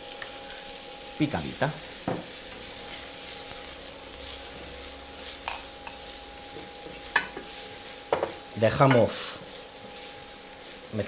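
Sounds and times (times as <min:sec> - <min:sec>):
onion and garlic sizzling in oil: 0:00.0 - 0:11.0
spoon stirring and scraping pan: 0:04.2 - 0:10.9.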